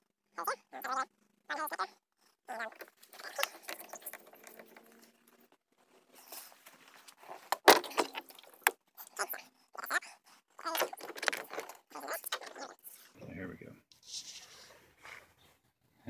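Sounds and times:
plastic water jug clattering: 2.7 - 5.1, 7.4 - 8.8, 10.7 - 12.6.

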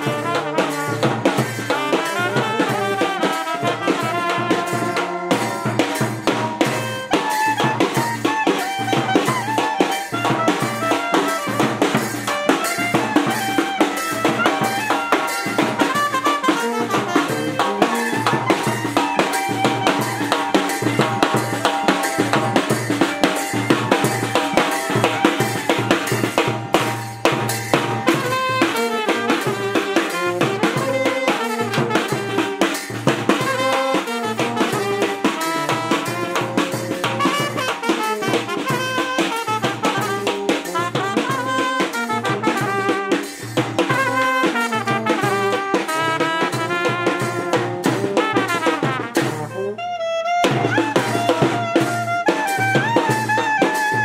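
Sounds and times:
brass playing a tune: 0.0 - 54.0
hand cymbals clashing: 0.1 - 39.4, 40.1 - 45.0
bass drum beating: 15.5 - 28.6.

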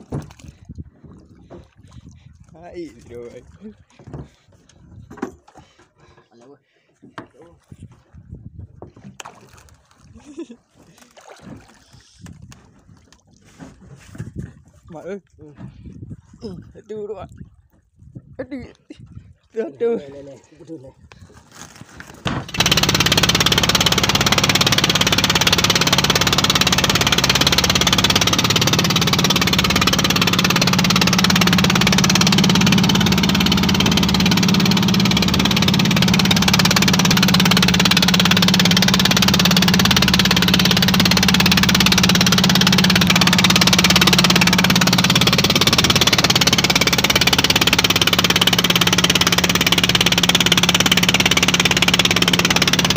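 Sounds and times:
boat engine drone: 22.3 - 52.9.

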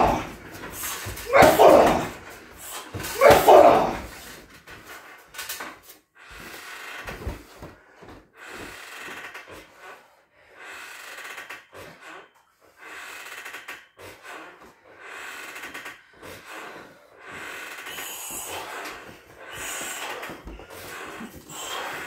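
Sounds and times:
punch on heavy bag: 0.0 - 2.2, 3.0 - 4.2
heavy breathing: 0.0 - 5.4, 6.0 - 22.0
man shouting: 1.2 - 2.2, 3.2 - 4.1.

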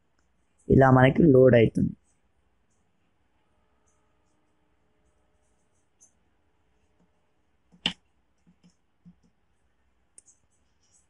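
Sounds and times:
faint ticks: 10.1 - 11.0.

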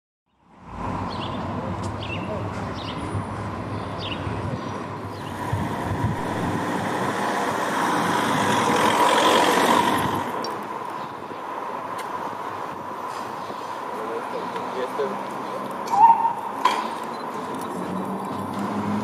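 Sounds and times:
steady traffic hum: 0.3 - 19.0
vehicle passing close by: 5.1 - 11.0, 17.5 - 19.0.

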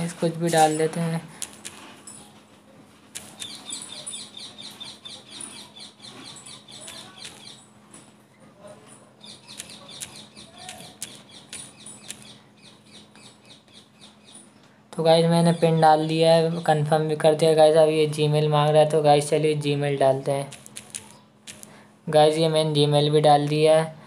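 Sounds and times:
low steady hum: 0.0 - 24.0
sharp clicks: 3.1 - 3.8, 6.8 - 7.6, 9.4 - 12.4, 20.5 - 21.8
bird chirping: 3.2 - 7.8, 9.2 - 14.6.

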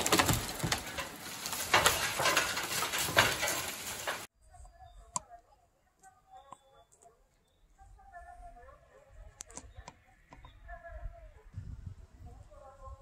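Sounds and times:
wind buffeting microphone: 10.4 - 13.0.

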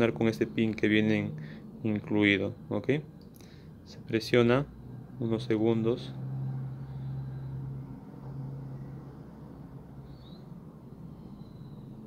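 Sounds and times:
steady low hum: 0.0 - 12.0
faint high chirp: 6.5 - 12.0.

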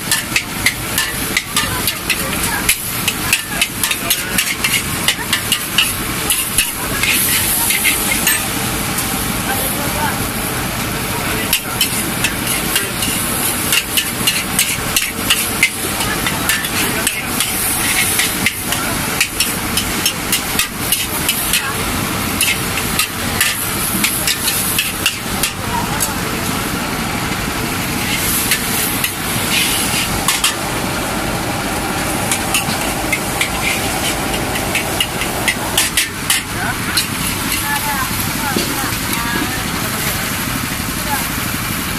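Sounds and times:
spatula clanking and scraping wok: 0.0 - 9.7, 11.2 - 26.6, 27.9 - 30.8, 32.0 - 39.8
steady frying hiss: 0.0 - 41.9.

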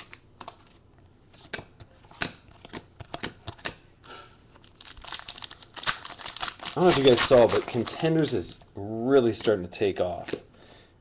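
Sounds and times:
cards snapping and sliding: 1.4 - 3.8.

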